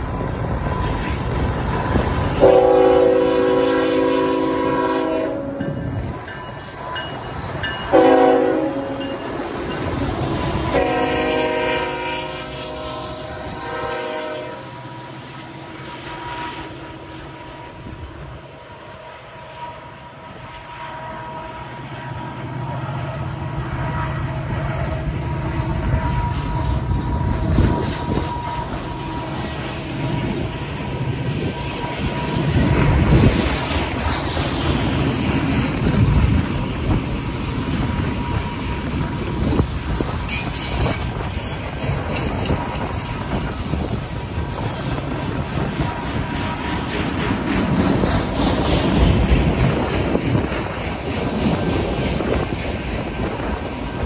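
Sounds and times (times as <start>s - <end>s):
locomotive air horn: 2.4s - 5.8s, 7.9s - 9.2s, 10.4s - 15.1s, 15.8s - 17.9s, 20.4s - 22.4s
freight cars rumbling and clattering: 26.9s - 54.0s.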